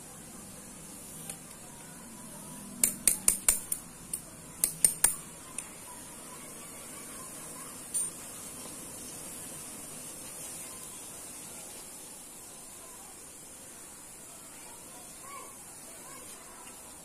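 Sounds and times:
rod tapping on ceramic tiles: 2.8s - 5.7s.

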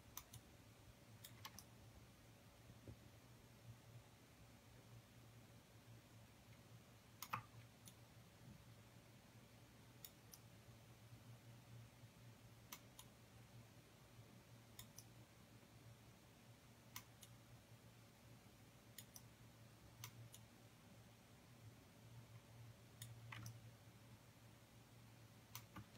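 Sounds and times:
low steady hum: 0.0s - 25.9s
faint sharp clicks: 0.1s - 0.4s, 7.2s - 8.0s, 23.0s - 23.6s, 25.5s - 25.9s.

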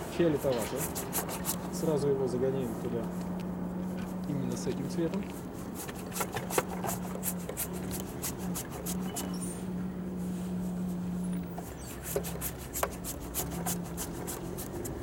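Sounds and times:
steady low hum: 0.0s - 15.0s
brush scrubbing paint on canvas: 0.1s - 2.0s, 5.2s - 9.6s, 11.6s - 15.0s.

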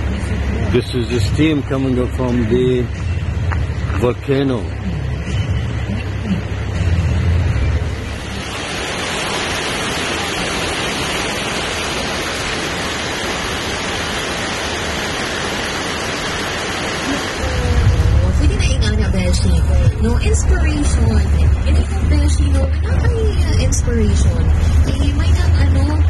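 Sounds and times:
steady rushing hiss: 8.0s - 22.4s
low rumble: 10.6s - 26.0s.

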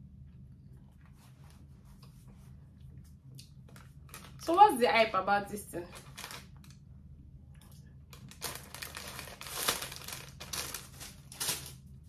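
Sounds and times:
paper packaging crinkling: 5.9s - 6.8s, 8.1s - 12.0s.

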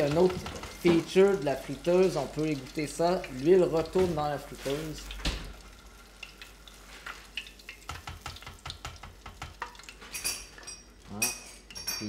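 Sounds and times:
food sizzling in deep-fryer oil: 0.0s - 12.0s
metal tongs tapping pot: 7.7s - 12.0s.

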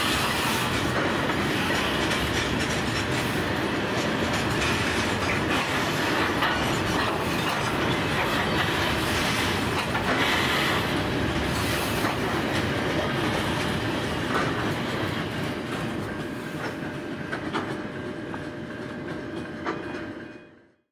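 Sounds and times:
freight train wagons rolling past: 0.0s - 20.8s
wheels clacking over rail joints: 0.1s - 20.1s.

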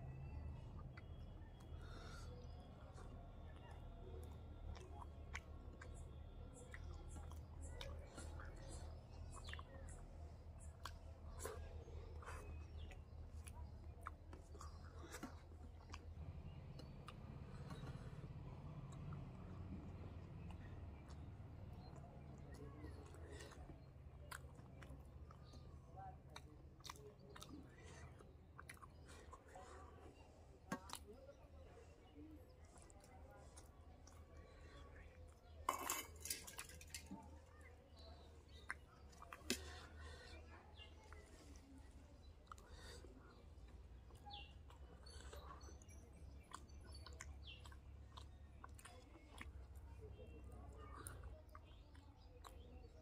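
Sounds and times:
mouth clicks and smacks: 0.5s - 35.8s, 36.5s - 53.0s
person chewing food: 6.6s - 53.0s
person chewing: 26.4s - 30.1s, 41.1s - 45.8s, 46.4s - 50.0s.

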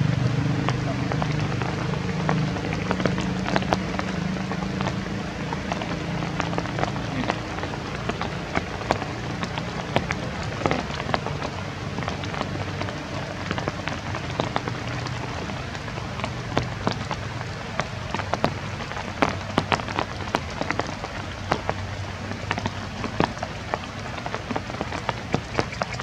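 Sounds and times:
patter with sharp ticks: 24.6s - 26.0s.

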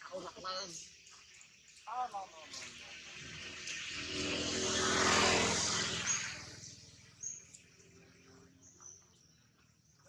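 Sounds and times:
motor vehicle passing: 2.3s - 10.0s
high bird chirps: 5.9s - 10.0s.

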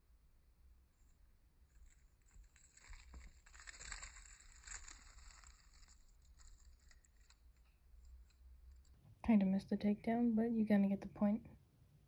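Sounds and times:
rustling of leaf litter: 1.8s - 7.4s.

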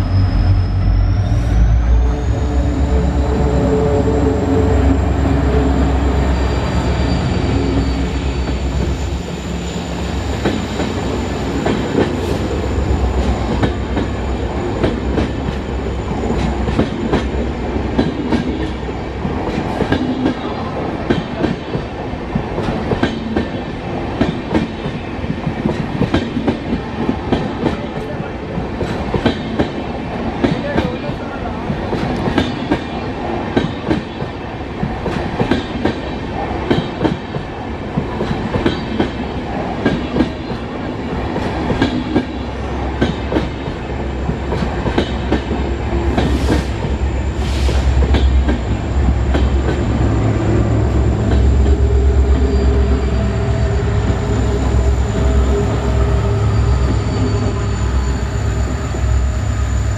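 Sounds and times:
diesel locomotive engine whining: 0.0s - 23.8s, 37.4s - 59.9s
train wheels clickety-clack: 10.4s - 12.5s, 13.2s - 57.1s.

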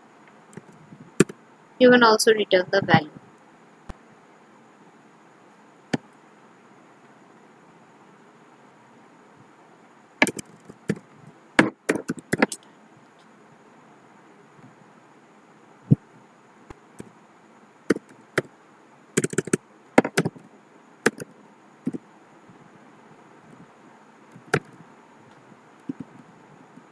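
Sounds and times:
keyboard key clicks: 10.2s - 11.0s, 19.2s - 20.4s, 21.1s - 21.3s.

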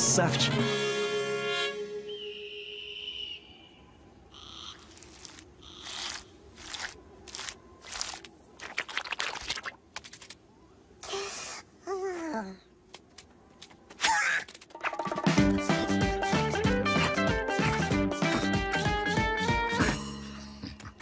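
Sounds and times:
high whistle-like tone: 1.9s - 4.0s.

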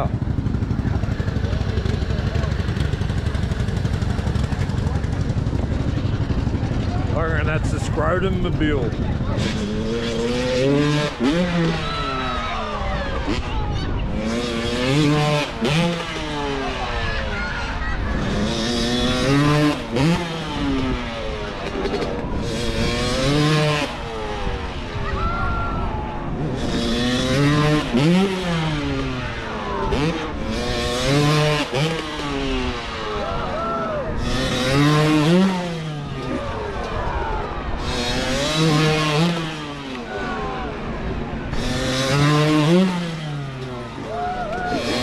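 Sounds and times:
dirt bike engines revving: 0.0s - 45.0s.

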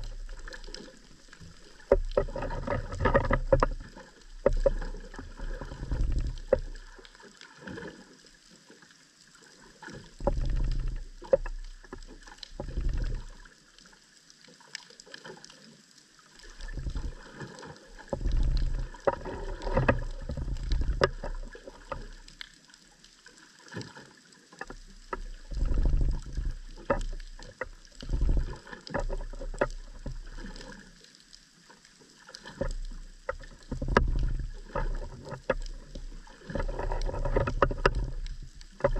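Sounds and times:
sharp clicks and crackles: 0.0s - 7.4s, 16.4s - 23.2s, 24.6s - 31.6s, 32.3s - 38.9s
muffled underwater water surges: 0.0s - 38.9s.

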